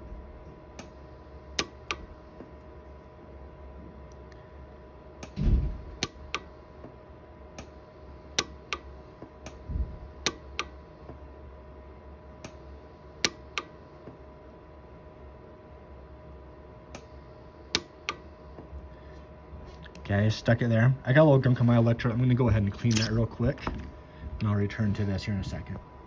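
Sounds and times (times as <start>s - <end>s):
faint steady hum: 0.0s - 26.0s
low thumps: 5.4s - 6.0s, 9.6s - 10.0s.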